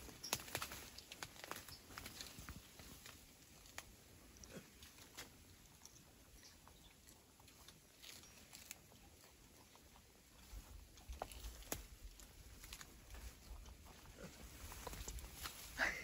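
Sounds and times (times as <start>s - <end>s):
small clicks and rustles: 0.0s - 3.9s, 10.4s - 13.8s, 14.5s - 15.7s.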